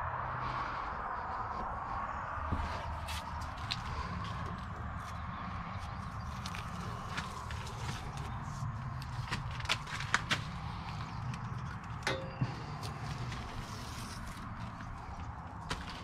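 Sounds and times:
steady low hum: 0:00.0 - 0:16.0
sharp ringing knock: 0:12.1 - 0:12.6.

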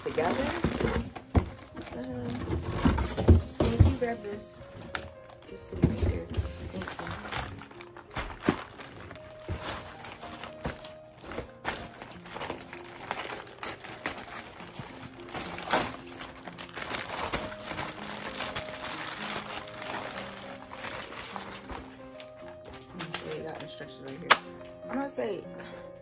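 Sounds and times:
plastic packaging crinkling: 0:00.0 - 0:24.4
background music with held notes: 0:00.0 - 0:26.0.

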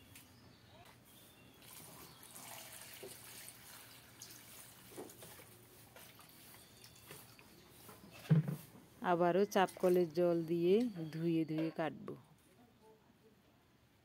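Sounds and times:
water trickling over greens: 0:01.6 - 0:08.3.

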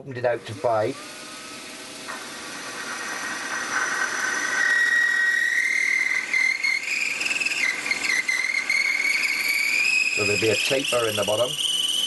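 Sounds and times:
milling cutter squealing in metal: 0:02.4 - 0:12.0.

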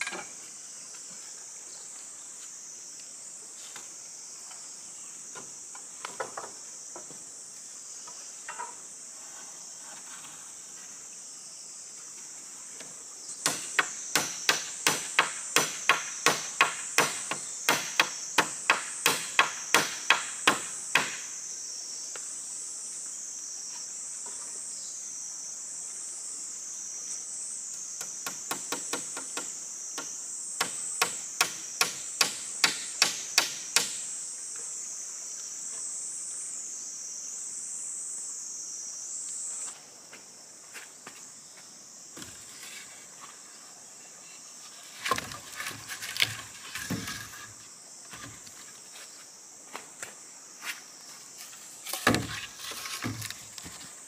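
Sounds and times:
insects droning: 0:00.0 - 0:54.0
sharp blows on wood: 0:13.4 - 0:21.2, 0:30.6 - 0:34.0.

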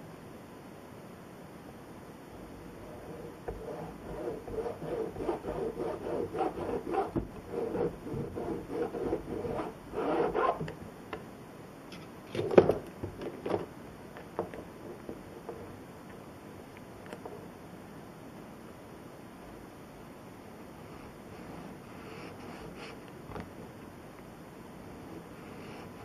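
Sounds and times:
file rubbing card edge: 0:02.8 - 0:10.7.

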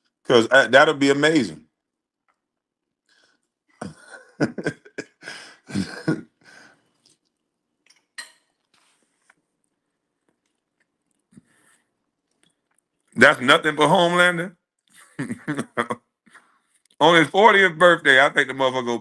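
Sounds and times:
person coughing: 0:03.8 - 0:06.2.

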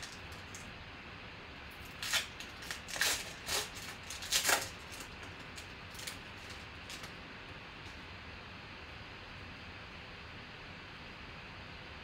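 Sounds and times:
foil wrapper tearing and crinkling: 0:01.8 - 0:07.2.

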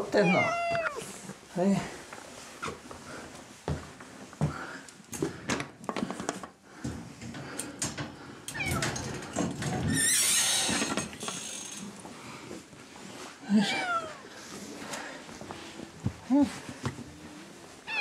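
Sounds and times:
cats meowing: 0:00.1 - 0:01.1, 0:08.5 - 0:09.1, 0:13.6 - 0:14.3.

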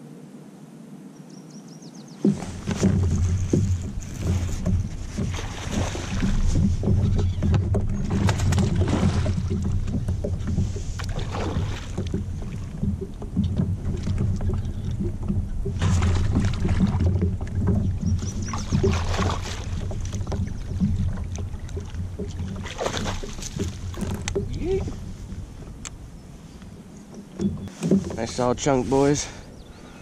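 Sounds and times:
fish splashing at water surface: 0:22.5 - 0:24.2.

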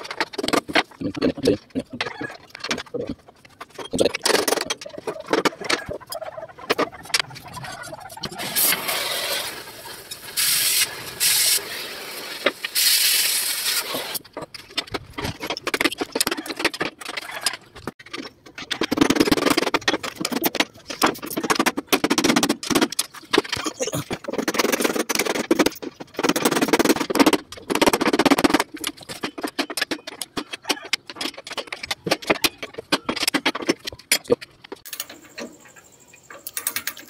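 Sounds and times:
loud hiss of gas: 0:10.3 - 0:14.2.

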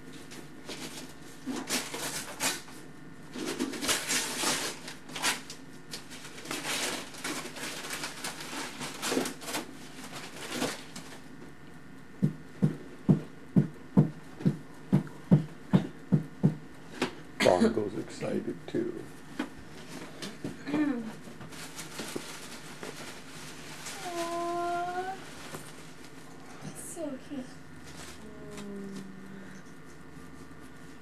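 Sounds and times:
paper and plastic rustling: 0:00.2 - 0:11.2, 0:21.2 - 0:26.3, 0:27.8 - 0:29.0
soft regular thumps: 0:12.2 - 0:17.2.

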